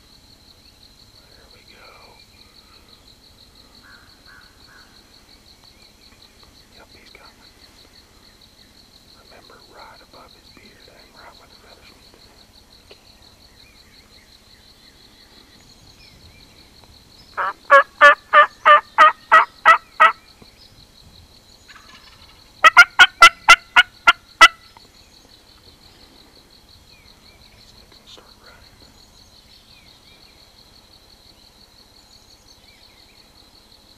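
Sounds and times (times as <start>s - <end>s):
turkey call yelps: 17.4s - 20.2s, 21.8s - 24.6s.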